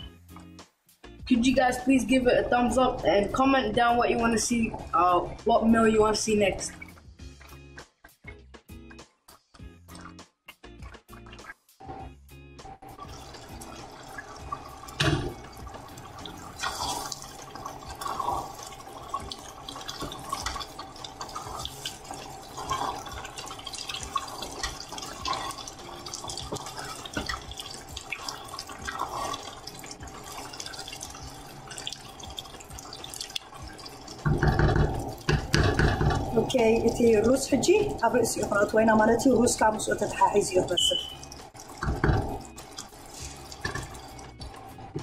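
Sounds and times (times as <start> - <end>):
quiet background music: 0.0 - 45.0
stew bubbling in a pot: 12.9 - 45.0
spatula stirring and scraping: 15.3 - 38.7, 39.3 - 45.0.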